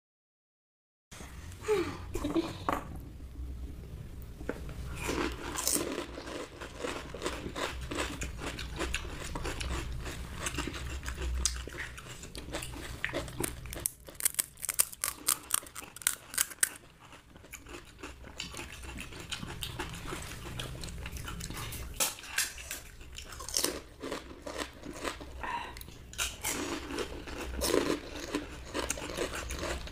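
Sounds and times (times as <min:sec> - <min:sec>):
people chewing: 0:04.9 - 0:29.9
crisp shells crunching: 0:12.5 - 0:18.2.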